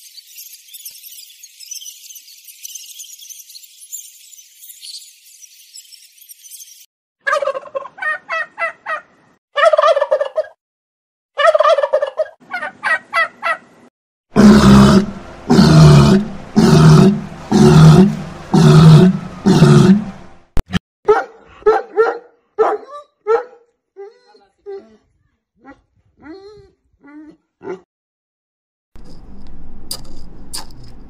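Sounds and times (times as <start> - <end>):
walrus calling loudly: 14.4 - 20.2.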